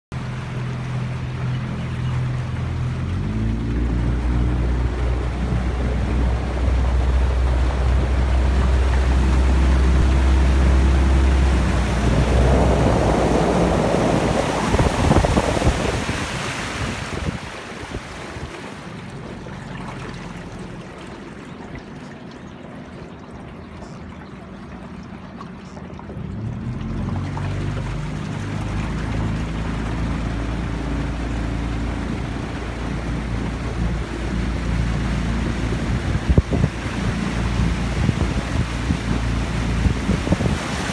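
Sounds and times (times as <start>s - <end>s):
outboard engine running: 0.1s - 40.9s
wind on microphone: 3.8s - 19.0s, 26.6s - 40.9s.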